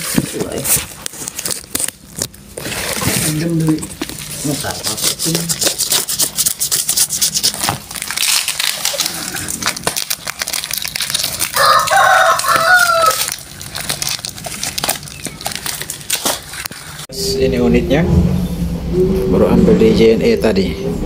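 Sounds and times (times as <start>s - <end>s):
plastic wrapping crinkling: 0.0s - 17.1s
rooster crowing: 11.5s - 13.4s.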